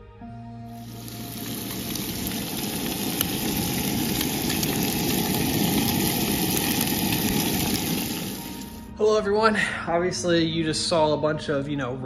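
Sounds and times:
bacon sizzling and popping: 0.7 - 8.9.

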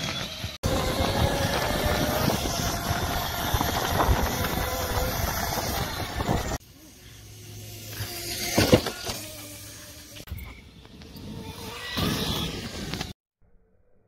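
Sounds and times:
electric motor whine: 0.0 - 13.2
steady rushing noise: 0.6 - 6.6.

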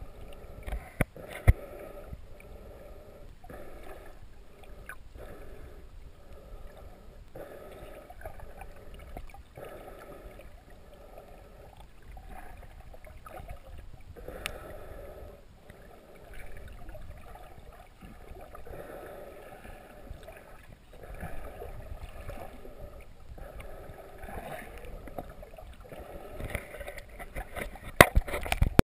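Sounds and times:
underwater water sloshing: 0.0 - 28.8.

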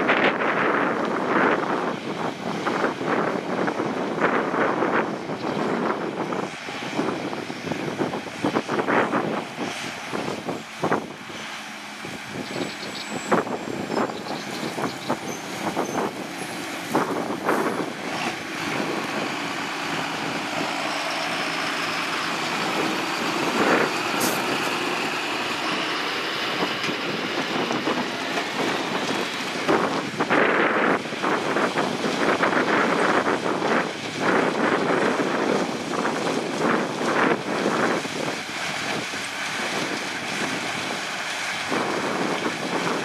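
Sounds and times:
harvester working: 0.0 - 43.0
tractor diesel engine: 0.0 - 43.0.

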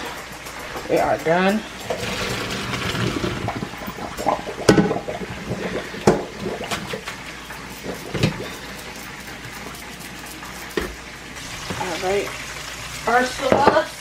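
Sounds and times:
water splashing into colander: 0.0 - 14.0.

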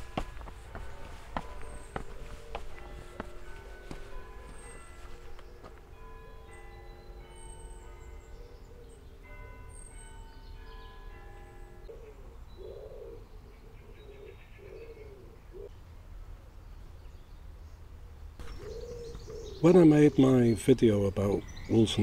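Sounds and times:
pigeon cooing: 11.9 - 15.7, 18.4 - 19.7
small birds chirping: 18.4 - 22.0.

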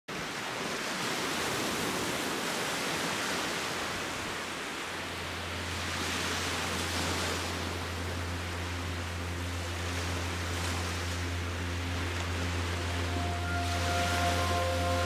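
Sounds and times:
low steady hum: 3.8 - 15.0.

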